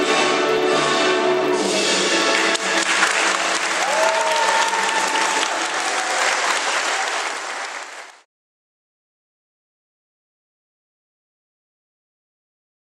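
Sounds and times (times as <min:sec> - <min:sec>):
music: 0:00.0 - 0:07.4
audience applauding: 0:01.6 - 0:08.3.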